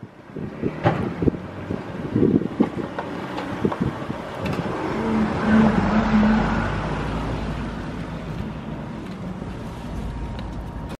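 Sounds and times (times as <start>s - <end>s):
car driving past: 4.5s - 8.1s.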